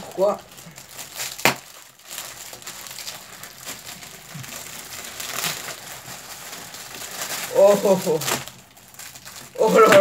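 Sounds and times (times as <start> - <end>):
plastic wrappers crinkling: 0.0 - 10.0.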